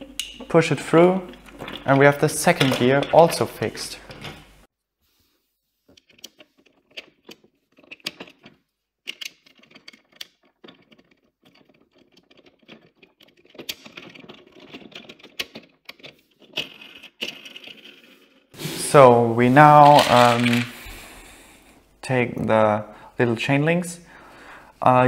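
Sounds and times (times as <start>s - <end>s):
plastic parts clicking and rattling: 0.0s - 4.6s, 5.9s - 18.5s, 19.8s - 20.9s.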